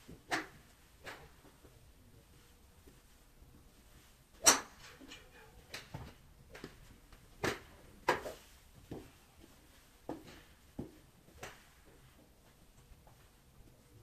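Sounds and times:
golf clubs striking balls: 0.1 - 1.8, 4.4 - 9.0, 10.1 - 11.9.

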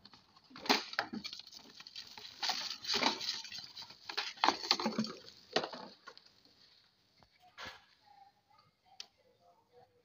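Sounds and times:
plastic wrapping crinkling: 0.0 - 6.9.

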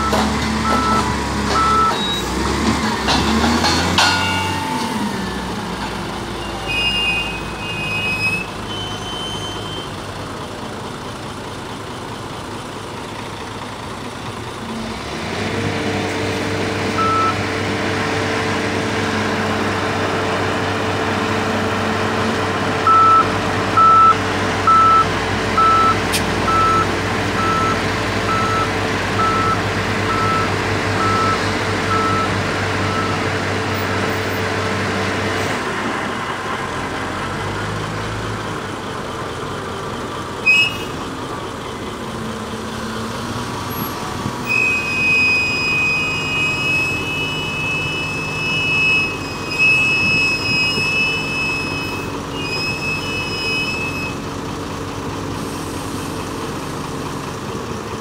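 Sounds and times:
reversing alarm beeping: 0.0 - 2.4, 6.3 - 10.0, 17.0 - 17.4, 22.8 - 33.2, 44.4 - 54.2
wheel loader engine running: 0.0 - 58.0.

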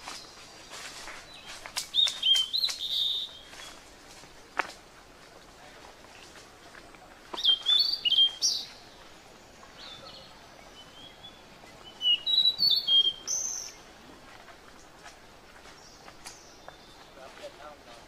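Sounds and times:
high-pitched chirping calls: 1.4 - 3.8, 7.4 - 8.9, 9.8 - 13.9.

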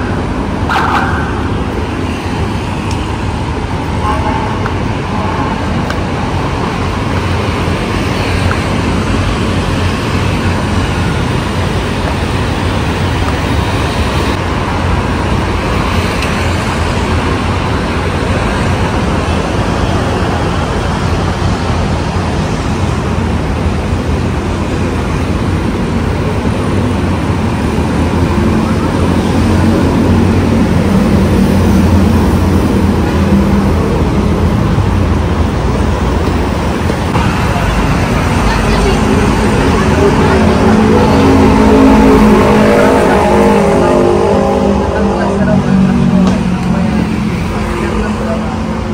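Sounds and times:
city road traffic: 0.0 - 48.9.

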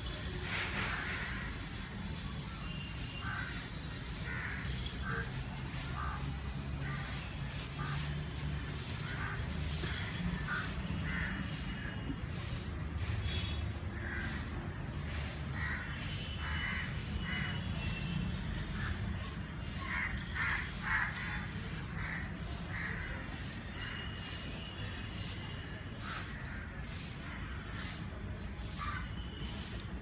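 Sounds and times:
birds calling: 0.0 - 13.5, 18.8 - 28.0.

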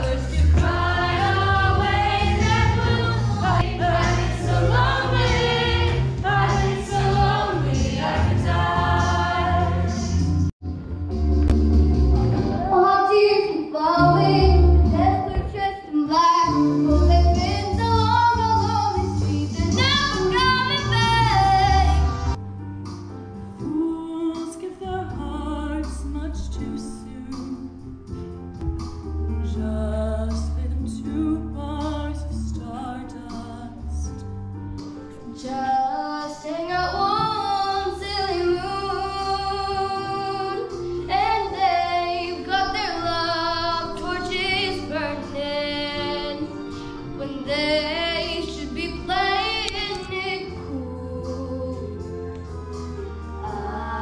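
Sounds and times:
girls singing: 0.0 - 10.2, 35.4 - 46.5, 53.4 - 54.0
musical accompaniment with bass line: 0.0 - 54.0.

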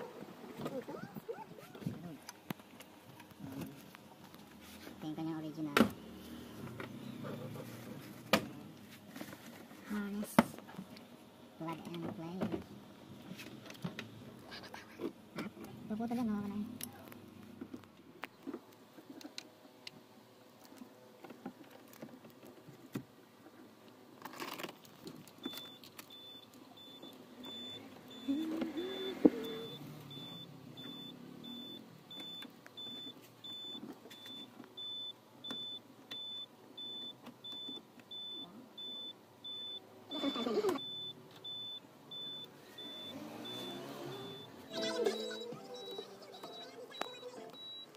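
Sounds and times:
electronic warning beep: 25.5 - 47.9.

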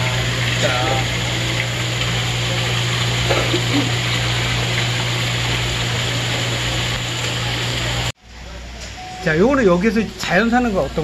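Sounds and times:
pump humming: 0.0 - 8.2
water running and bubbling: 0.0 - 8.2.

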